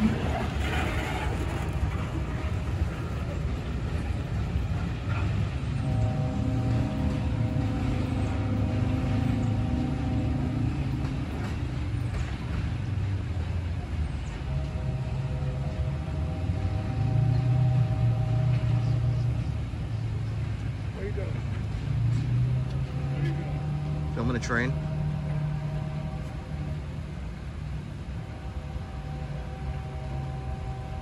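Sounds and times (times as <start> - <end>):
train low rumble: 0.0 - 31.0
locomotive air horn blasts: 4.4 - 12.6, 14.2 - 19.9, 21.0 - 31.0.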